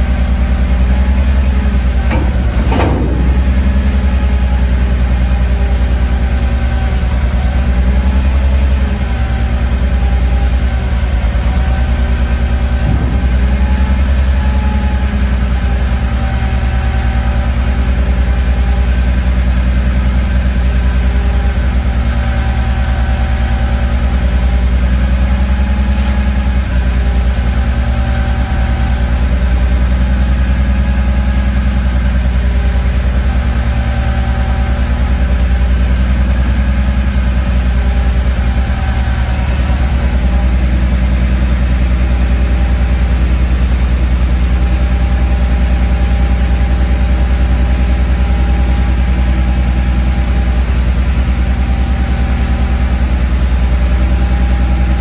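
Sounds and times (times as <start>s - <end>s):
garbage truck engine idling: 0.0s - 55.0s
hydraulic arms: 0.5s - 9.5s.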